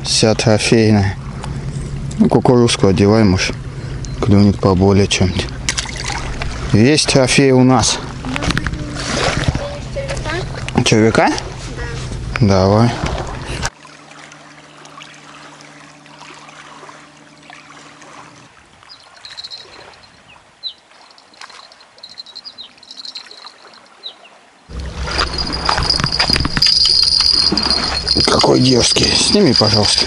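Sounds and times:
low steady hum: 0.0s - 20.1s, 24.7s - 30.0s
river water trickling and lapping: 0.4s - 12.0s, 12.7s - 30.0s
high steady tone: 19.2s - 20.1s, 21.1s - 23.9s, 24.7s - 30.0s
short high chirps: 19.3s - 20.0s, 21.1s - 23.9s.

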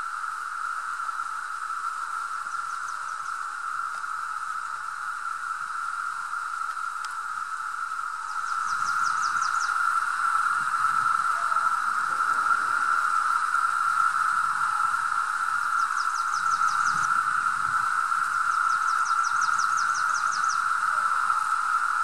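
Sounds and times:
cicadas droning: 0.0s - 22.0s
fast high ticks: 6.6s - 7.3s.

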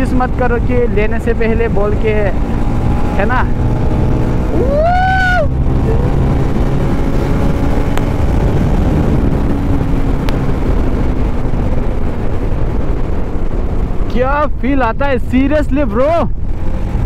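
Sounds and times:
motorcycle engine cruising: 0.0s - 17.0s
wind rush on microphone: 0.0s - 17.0s.

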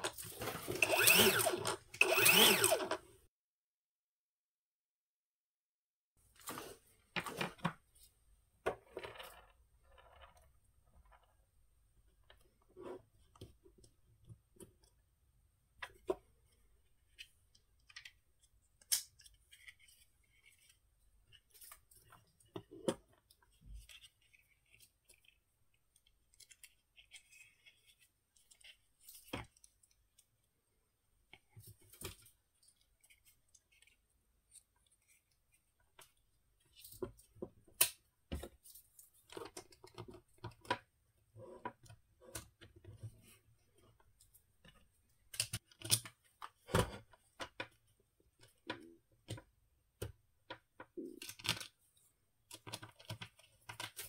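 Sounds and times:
small screwdriver working: 0.7s - 3.0s.

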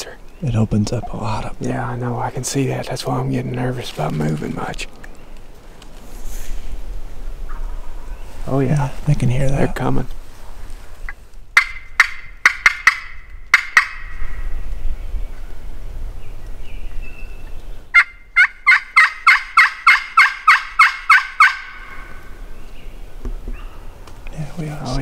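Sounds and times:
turkey call notes: 11.0s - 14.6s, 17.9s - 23.9s.

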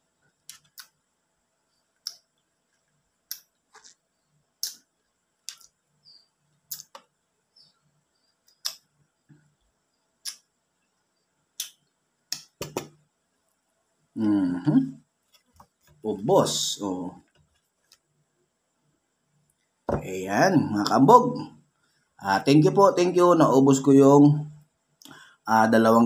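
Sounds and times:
wet mouth smacks: 4.6s - 4.8s, 6.7s - 7.0s, 10.2s - 10.4s, 11.6s - 12.9s.

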